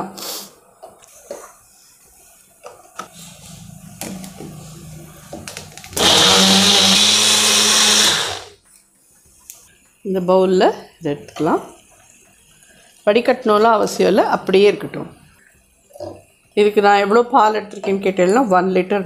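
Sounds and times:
mixer grinder blending: 0:03.2 - 0:08.6.

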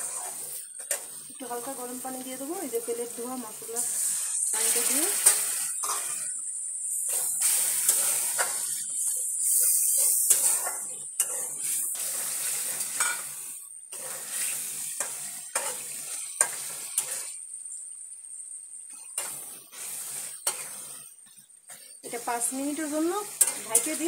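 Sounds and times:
spice paste sizzling in oil: 0:00.0 - 0:24.0
metal spatula scraping pot: 0:03.8 - 0:06.4, 0:07.0 - 0:13.3, 0:22.8 - 0:24.0.

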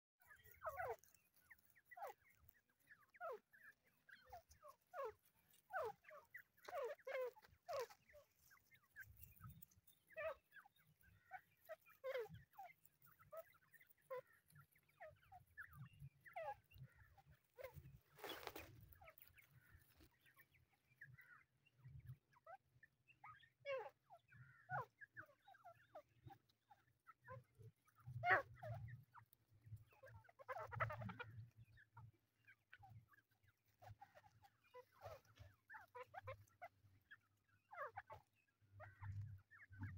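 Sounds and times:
young birds peeping: 0:00.2 - 0:39.9.

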